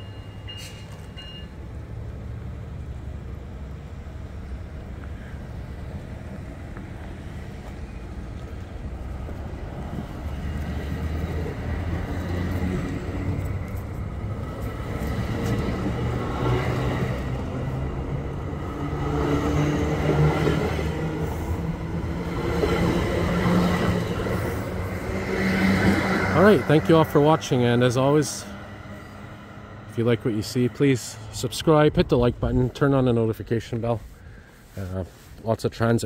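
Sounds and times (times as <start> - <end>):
train rolling on rails: 0.0 - 32.8
train clanks: 18.8 - 26.6.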